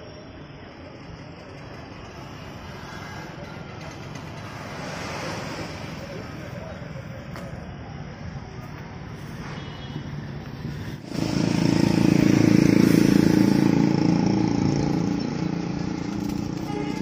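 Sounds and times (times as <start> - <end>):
vehicle engine running: 10.4 - 17.0.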